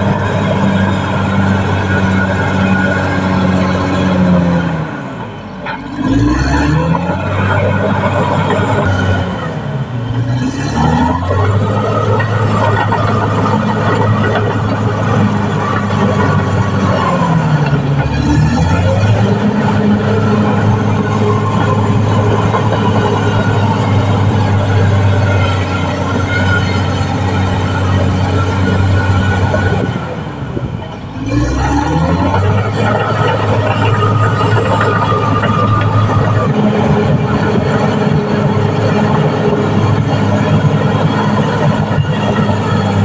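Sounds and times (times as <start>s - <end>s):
bulldozer diesel engine under load: 0.0s - 43.0s
steel tracks clattering: 11.1s - 43.0s.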